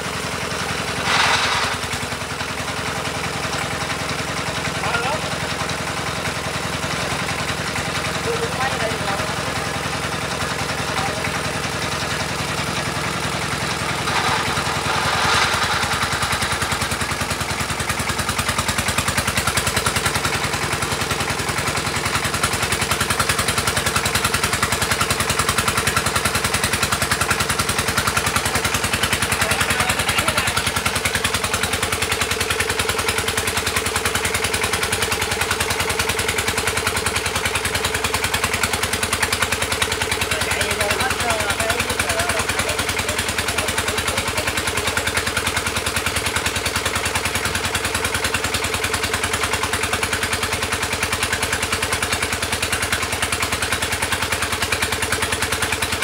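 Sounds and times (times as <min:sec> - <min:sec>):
pump engine running: 0:00.0 - 0:56.0
brief hiss: 0:01.0 - 0:02.4.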